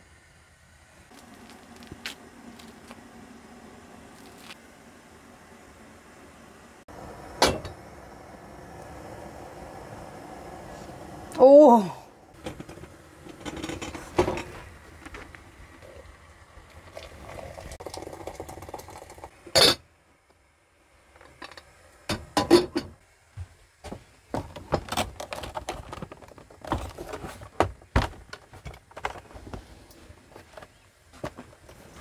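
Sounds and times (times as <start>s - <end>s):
objects knocking and clattering: 12.4s - 15.4s, 23.9s - 29.6s.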